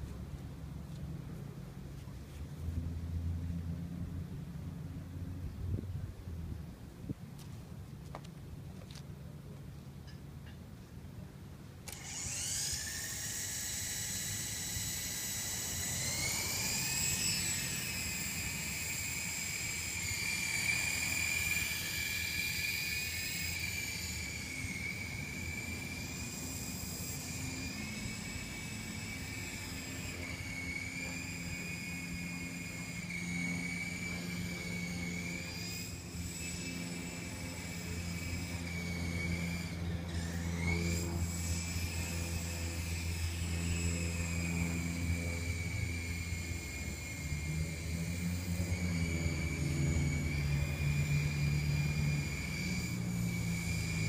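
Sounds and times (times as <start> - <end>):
low hum: 0.0 - 54.0
toy helicopter motor whine: 11.8 - 54.0.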